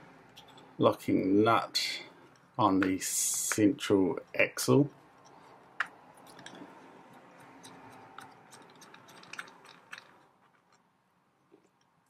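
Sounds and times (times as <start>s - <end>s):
plastic nut rubbing and scraping: 5.0s - 10.8s.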